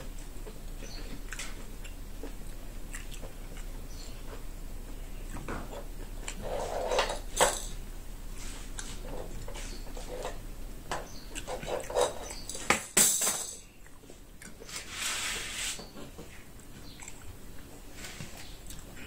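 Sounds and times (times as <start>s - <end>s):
chewing and mouth sounds: 0.0s - 6.4s, 11.1s - 12.5s, 13.7s - 14.7s, 16.3s - 19.0s.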